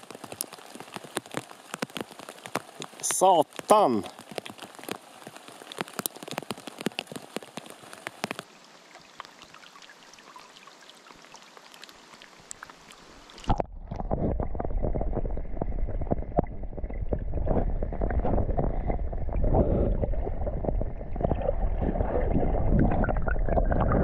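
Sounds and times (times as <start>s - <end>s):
heavy rain pattering on river: 0.0s - 14.1s
underwater churning rumble: 13.5s - 24.0s.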